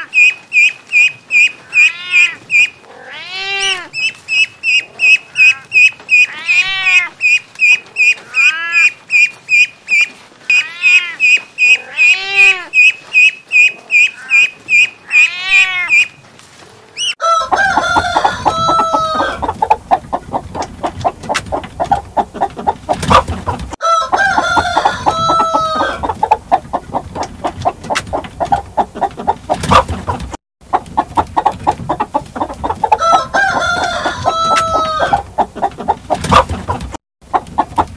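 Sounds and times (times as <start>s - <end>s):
ducklings peeping: 0.0s - 2.8s, 3.6s - 16.2s
chickens clucking: 0.0s - 3.0s, 3.6s - 37.9s
rooster crowing: 17.2s - 19.5s, 23.8s - 26.0s, 32.9s - 35.2s.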